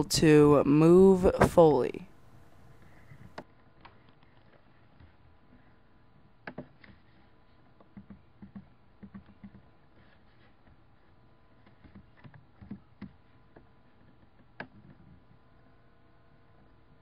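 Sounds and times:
faint steady hum: 0.0 - 17.0
keyboard typing: 7.8 - 10.2.

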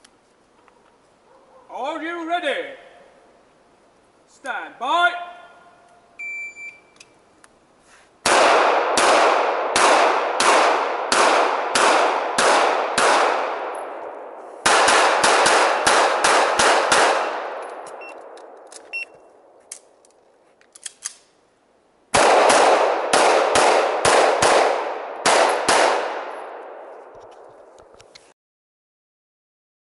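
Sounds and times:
handgun shots: 8.2 - 13.8, 14.6 - 18.4, 22.2 - 26.4
faint gun clicks: 19.6 - 21.4.

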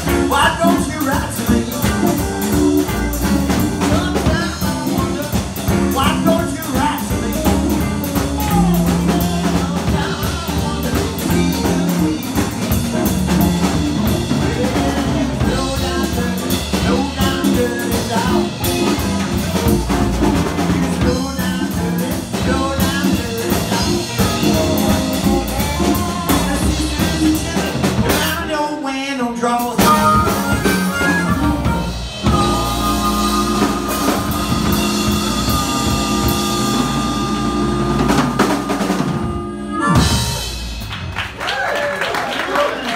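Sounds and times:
drum kit beat: 0.0 - 28.5, 29.6 - 41.7
wavering lead guitar line: 29.8 - 40.7.

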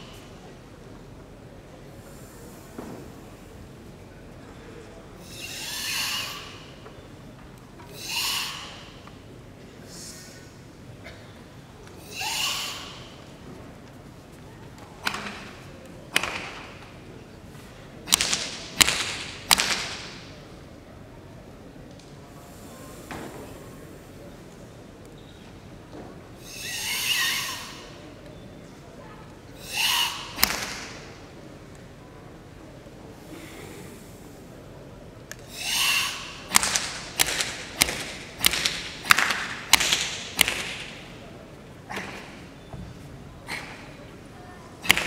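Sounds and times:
forceful hissing breath: 2.0 - 2.8, 5.2 - 6.8, 7.9 - 9.0, 9.8 - 10.6, 26.4 - 28.0, 29.6 - 30.4, 33.2 - 34.6, 35.5 - 36.5.

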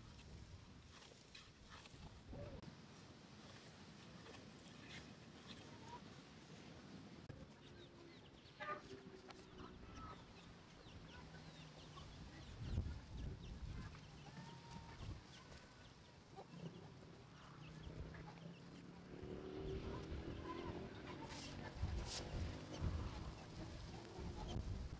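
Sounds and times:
chickens clucking: 7.3 - 24.8.

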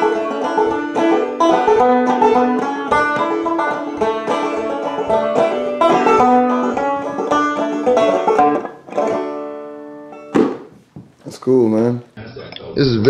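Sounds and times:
banjo plucked notes and chord: 0.0 - 10.4.

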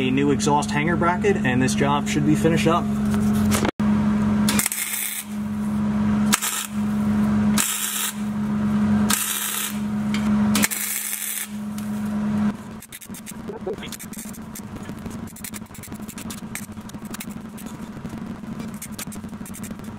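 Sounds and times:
steady low hum: 0.0 - 19.9
welding arc crackling hiss: 4.5 - 5.4, 6.3 - 6.9, 7.6 - 8.3, 9.1 - 9.9, 10.6 - 11.7, 12.6 - 19.9.

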